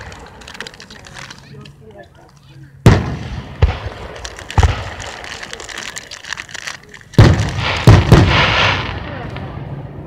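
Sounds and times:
fireworks crackles: 0:00.0 - 0:10.0
fireworks bangs: 0:02.8 - 0:06.1, 0:07.1 - 0:10.0.

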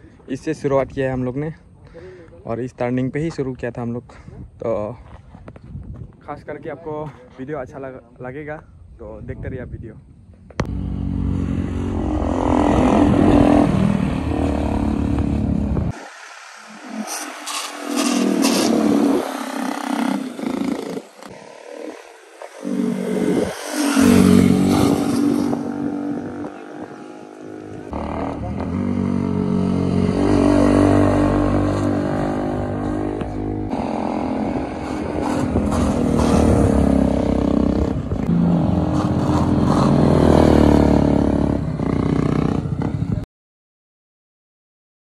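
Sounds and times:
motorcycle engine revving: 0:10.6 - 0:43.2.

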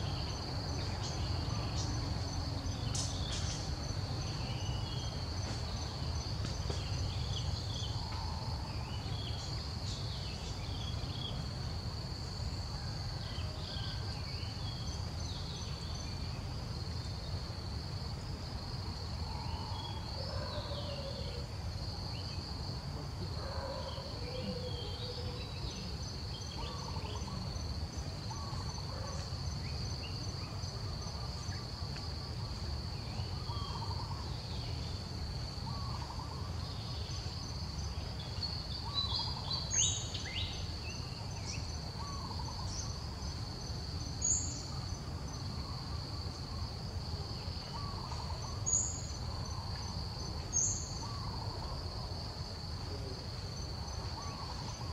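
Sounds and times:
insects trilling: 0:00.0 - 0:54.9.

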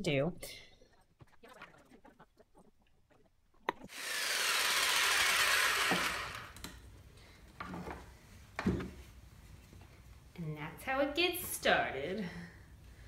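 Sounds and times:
electric jigsaw cutting wood: 0:03.9 - 0:06.7.

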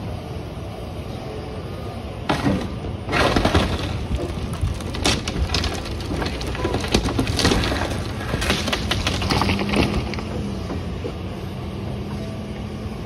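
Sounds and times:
excavator engine running: 0:00.0 - 0:13.0
wood cracking and splintering: 0:02.3 - 0:10.4.

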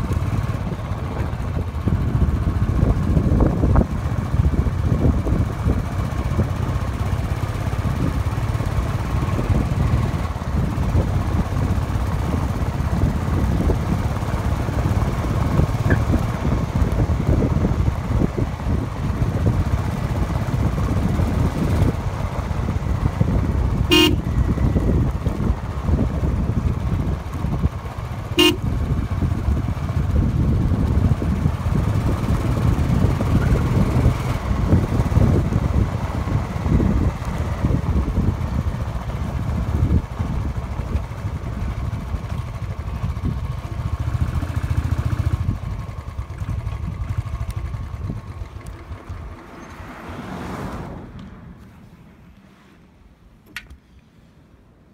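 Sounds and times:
wind rumble on microphone: 0:00.0 - 0:49.9
motorcycle engine: 0:00.0 - 0:52.3
short horn toots: 0:23.9 - 0:24.4, 0:28.4 - 0:28.6.

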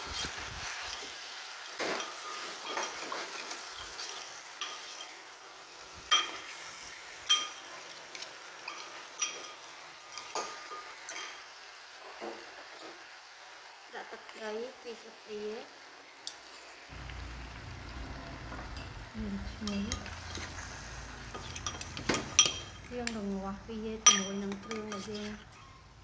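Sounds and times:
sizzle of stir-frying: 0:00.0 - 0:26.0
metal clinks and scrapes in pot: 0:01.8 - 0:05.3, 0:06.1 - 0:11.4, 0:18.5 - 0:23.3, 0:24.0 - 0:26.0.

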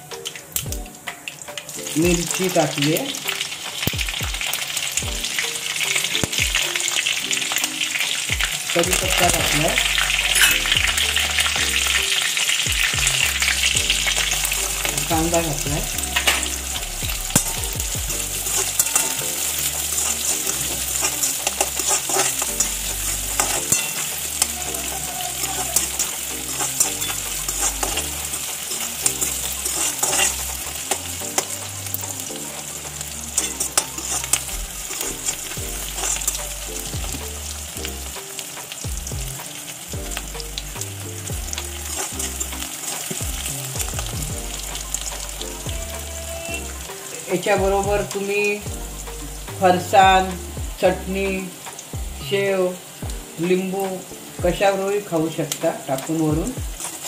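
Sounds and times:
onion sizzling in oil: 0:00.0 - 0:57.0
metal spoon scraping pan: 0:08.9 - 0:12.0, 0:18.2 - 0:36.9.

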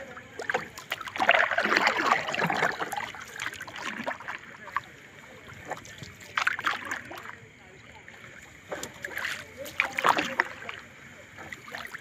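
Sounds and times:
fishing net hauled over boat side: 0:00.0 - 0:12.0
water splashing and dripping: 0:00.0 - 0:12.0.

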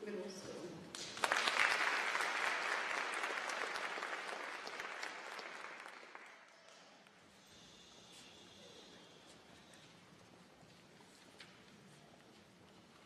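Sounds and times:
audience applauding: 0:00.9 - 0:06.9.

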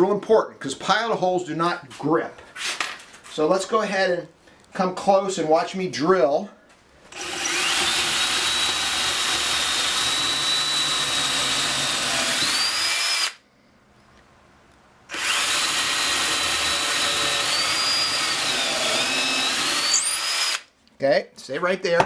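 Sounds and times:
electric drill boring into wood: 0:07.1 - 0:13.4, 0:15.1 - 0:20.7.

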